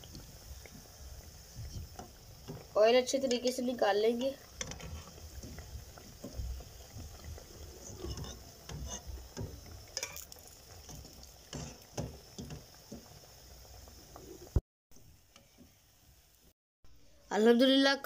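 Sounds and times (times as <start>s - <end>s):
oil bubbling and sizzling: 0.0s - 17.2s
metal spoon clinking on pan: 10.0s - 10.4s.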